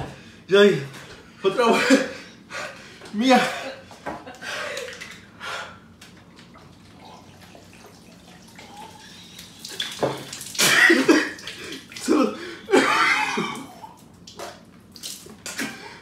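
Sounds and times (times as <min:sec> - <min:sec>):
water splashing on head: 0:07.4 - 0:12.3, 0:13.5 - 0:15.7
man gasping: 0:11.6 - 0:12.7.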